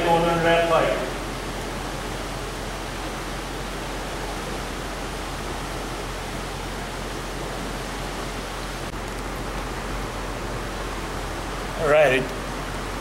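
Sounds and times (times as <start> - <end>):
stream water rushing: 0.0 - 13.0.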